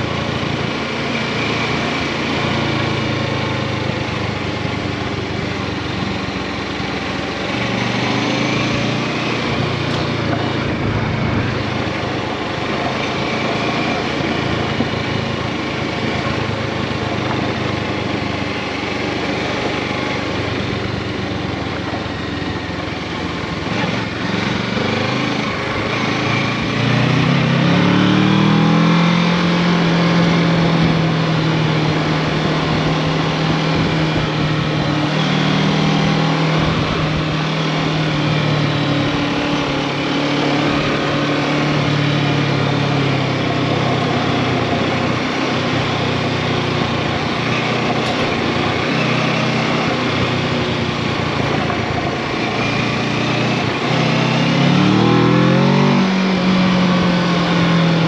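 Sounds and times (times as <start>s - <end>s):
motorcycle engine under load: 0.0s - 58.0s
wind noise: 30.5s - 35.1s.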